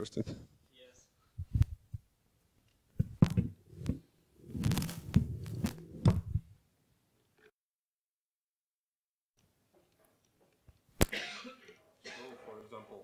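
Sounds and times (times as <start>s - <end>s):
handling thumps and knocks: 2.9s - 6.5s
rustling: 3.0s - 6.6s.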